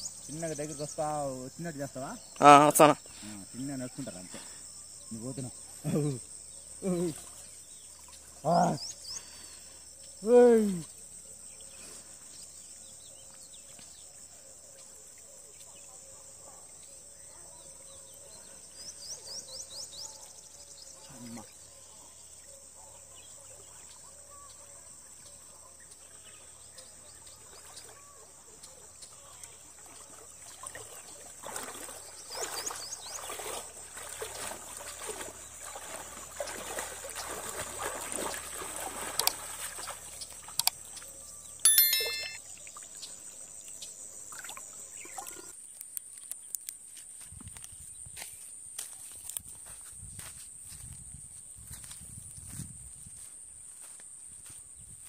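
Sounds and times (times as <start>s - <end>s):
insects droning: 0.0s - 55.0s
wading through shallow water: 2.0s - 15.9s, 16.6s - 43.5s
bird chirps: 39.8s - 43.2s.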